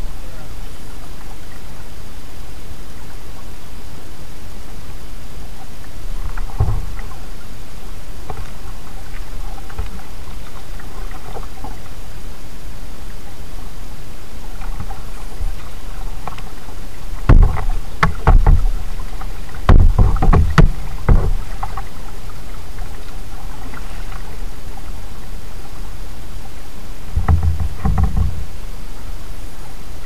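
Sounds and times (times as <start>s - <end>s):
steady hiss: 0.0s - 30.0s
paddle splashes and hull knocks: 5.8s - 7.5s, 8.2s - 12.0s, 14.4s - 28.7s.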